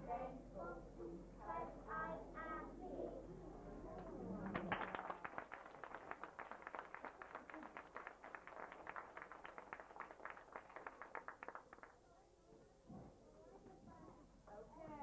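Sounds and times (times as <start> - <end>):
hands clapping: 4.0 - 12.0.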